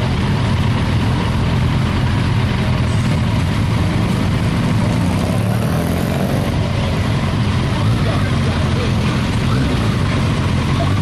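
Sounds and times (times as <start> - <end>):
vehicle engines idling: 0.0 - 11.0.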